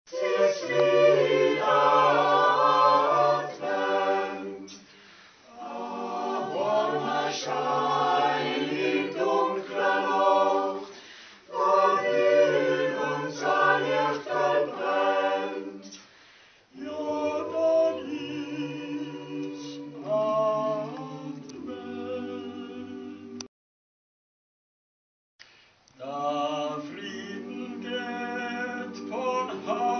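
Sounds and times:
choir singing a cappella: 0.1s - 23.5s, 26.0s - 29.9s.

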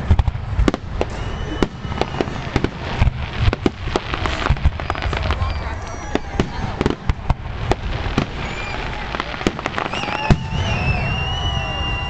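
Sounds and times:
fireworks bangs and crackling: 0.0s - 12.0s
long high whistle: 1.0s - 2.5s, 8.3s - 9.1s, 9.8s - 12.0s.

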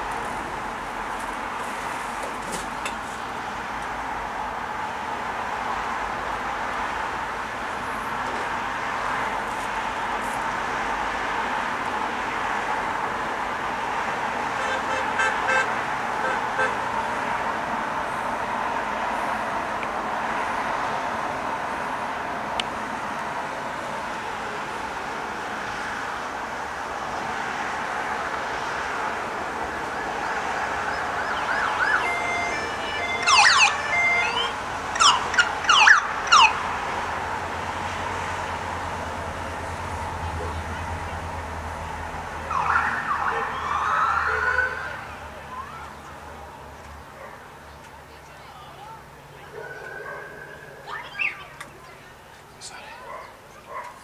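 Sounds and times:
road noise: 0.0s - 54.0s
vehicles passing: 0.0s - 54.0s
vehicle horn short toots: 14.6s - 16.8s
steady siren tone: 29.6s - 36.7s, 42.4s - 45.8s, 49.6s - 51.4s
police siren whoops: 29.8s - 36.7s, 42.4s - 45.9s.

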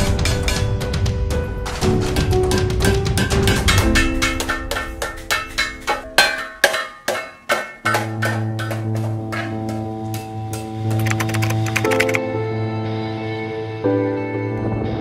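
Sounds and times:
background music with held chords: 0.0s - 6.6s, 7.8s - 15.0s
mallet tapping tin sheet: 3.5s - 10.3s.

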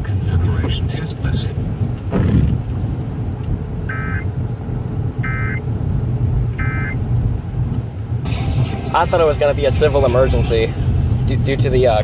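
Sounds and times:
car running hum: 0.0s - 12.0s
warbling digital data tones: 3.9s - 4.3s, 5.2s - 5.6s, 6.6s - 7.0s.

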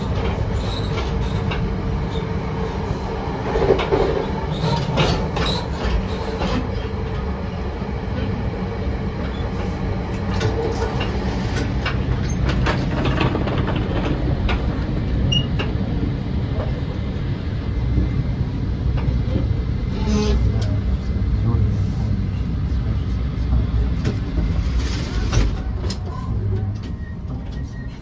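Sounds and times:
train wheels rumbling on rails: 0.0s - 28.0s
wheels clicking over rail joints: 10.2s - 14.8s.

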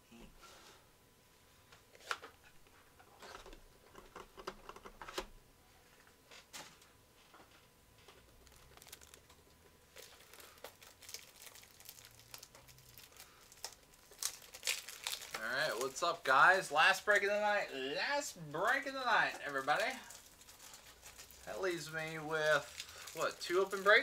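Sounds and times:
handling clicks and crinkles: 6.8s - 17.3s, 18.6s - 24.0s.

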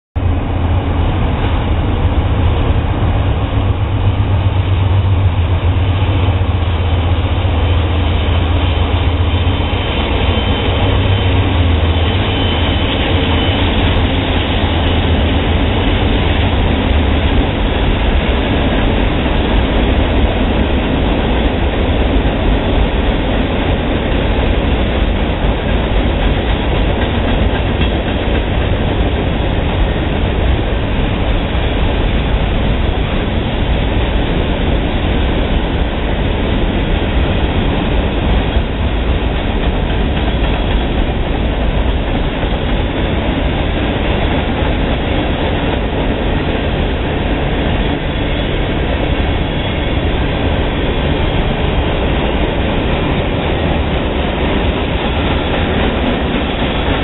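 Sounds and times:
diesel locomotive rumble: 0.2s - 57.0s
train wheels on rails: 0.2s - 57.0s
high wheel squeal: 9.6s - 15.0s.

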